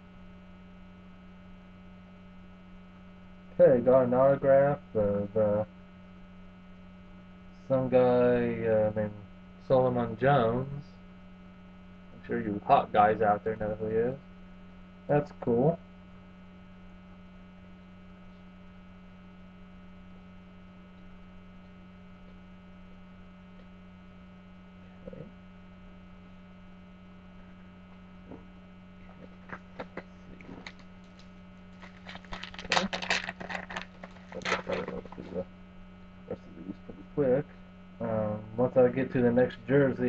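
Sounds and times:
mains hum: 0:00.0 - 0:40.0
foil wrappers crackling: 0:29.2 - 0:35.4.

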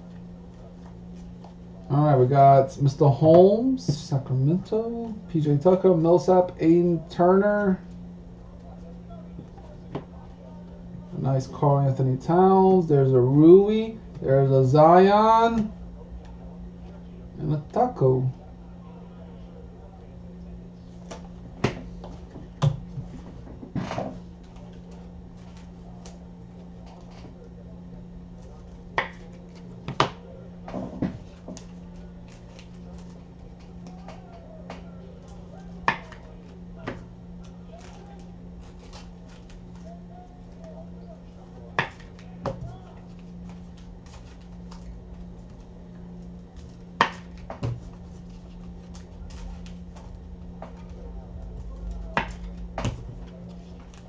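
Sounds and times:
steady low hum: 0:00.0 - 0:54.0
cards rustling: 0:24.0 - 0:27.4, 0:28.3 - 0:54.0.

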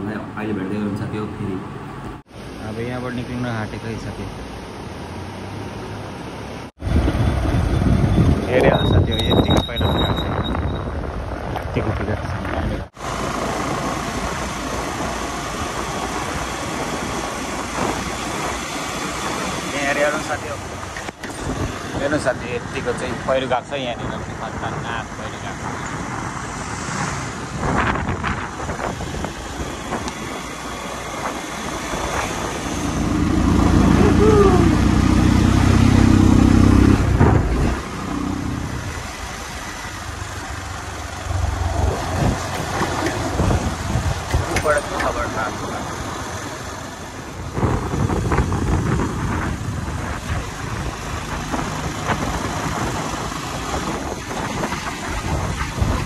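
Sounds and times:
wind and road noise: 0:00.0 - 0:56.0.

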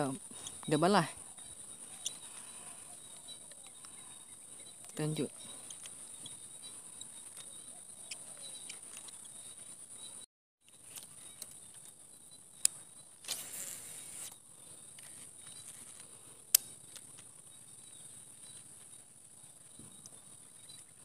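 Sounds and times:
insects droning: 0:00.0 - 0:21.0
sharp clicks: 0:16.5 - 0:17.2.

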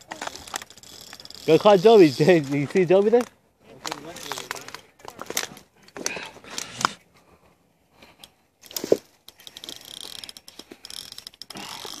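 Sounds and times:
fishing reel ratcheting clicks: 0:00.0 - 0:03.3, 0:04.1 - 0:04.8, 0:08.6 - 0:12.0.

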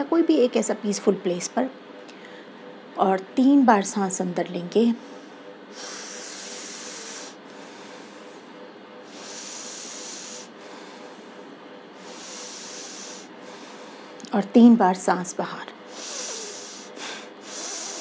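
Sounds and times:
woman breathing deeply: 0:05.0 - 0:14.2, 0:15.9 - 0:18.0.

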